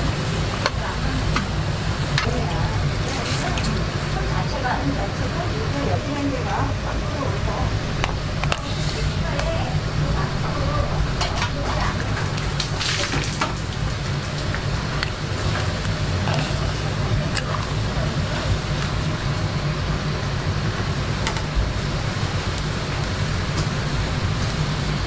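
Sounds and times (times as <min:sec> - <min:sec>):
broth bubbling: 0:00.0 - 0:25.0
gas burner rumble: 0:00.0 - 0:25.0.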